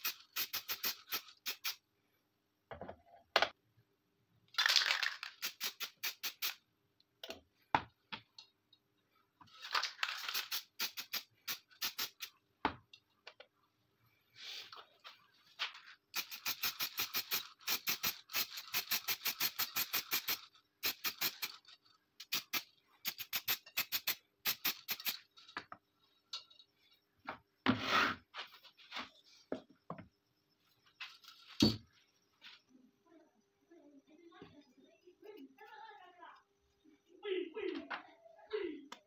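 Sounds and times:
spray can ball rattling: 0:00.0 - 0:01.8, 0:04.5 - 0:06.6, 0:09.5 - 0:12.4, 0:15.6 - 0:25.6
spray hiss: 0:00.0 - 0:01.8, 0:05.4 - 0:06.6, 0:10.1 - 0:12.3, 0:16.2 - 0:21.6, 0:22.2 - 0:25.2.

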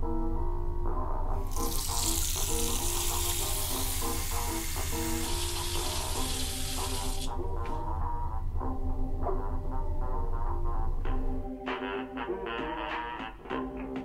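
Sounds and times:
background music with bass line: 0:00.0 - 0:14.0
tap water running into basin: 0:01.4 - 0:07.3.

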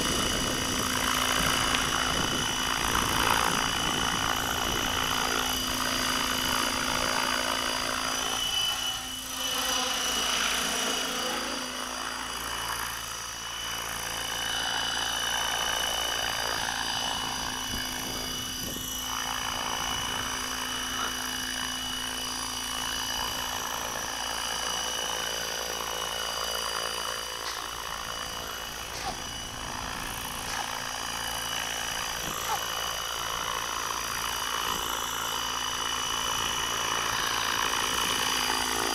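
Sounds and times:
rc helicopter motor whine: 0:00.0 - 0:38.9
rotor hum: 0:00.0 - 0:38.9.

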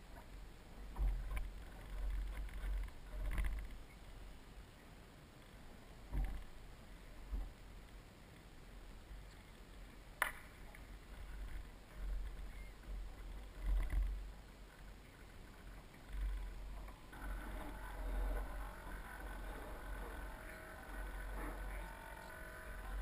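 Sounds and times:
uneven low rumble: 0:10.9 - 0:23.0.

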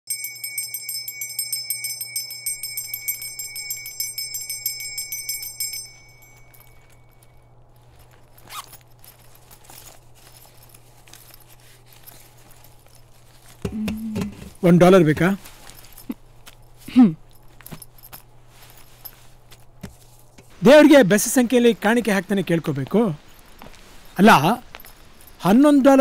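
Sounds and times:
brass hand bell ringing: 0:00.1 - 0:07.5
low steady hum: 0:00.1 - 0:25.4.

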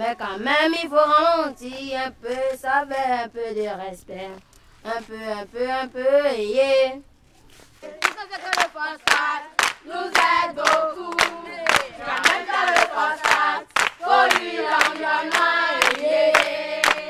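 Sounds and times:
children singing: 0:07.9 - 0:17.0
hands clapping: 0:07.9 - 0:17.0.

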